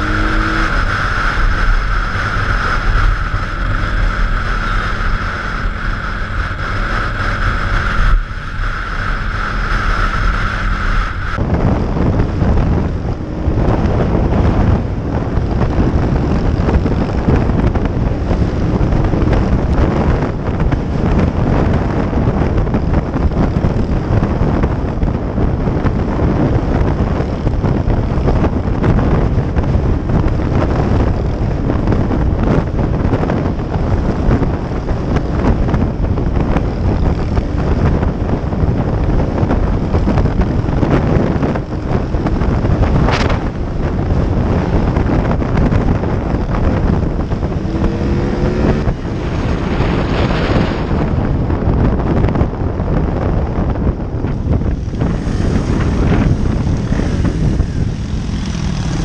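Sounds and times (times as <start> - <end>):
wind noise on microphone: 0.0 - 59.0
small motorcycle engine running: 54.2 - 59.0.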